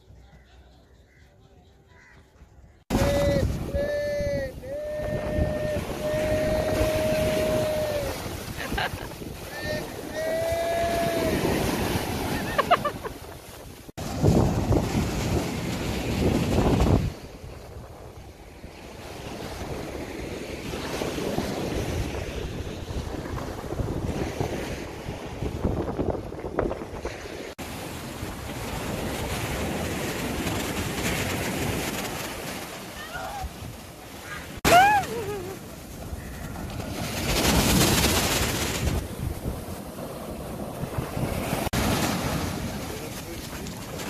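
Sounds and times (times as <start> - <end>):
wind buffeting microphone: 2.8 - 27.6, 34.8 - 44.0
small waves breaking on shore: 2.9 - 44.0.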